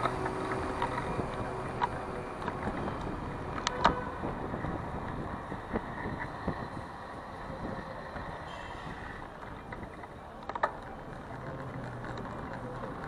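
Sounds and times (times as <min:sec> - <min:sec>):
bicycle clicks: 0:00.0 - 0:04.0
city street traffic rumble: 0:00.0 - 0:13.0
low engine hum: 0:00.0 - 0:13.0.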